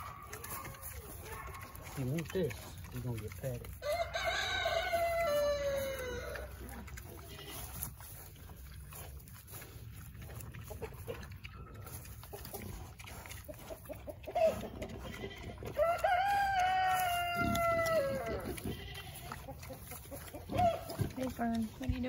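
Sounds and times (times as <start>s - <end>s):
piglets eating: 0.0s - 22.0s
rooster crowing: 3.8s - 6.5s, 15.8s - 18.5s.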